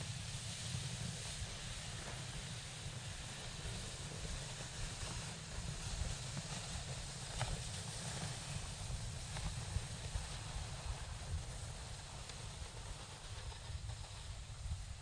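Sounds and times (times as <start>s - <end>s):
steady hiss: 0.0s - 15.0s
wind rumble on microphone: 0.0s - 15.0s
faint ticks: 12.0s - 14.4s.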